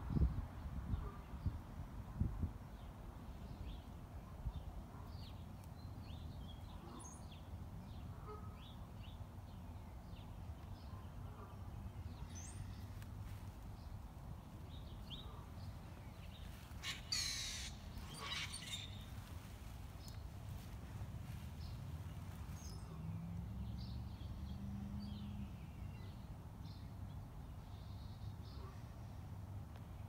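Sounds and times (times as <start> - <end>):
small birds chirping: 2.7 - 28.7
harsh bird call: 16.8 - 19.0.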